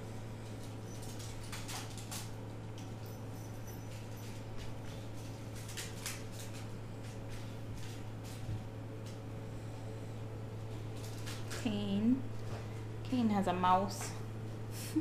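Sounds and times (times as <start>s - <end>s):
kittens scampering on wooden floor: 0.4s - 9.2s.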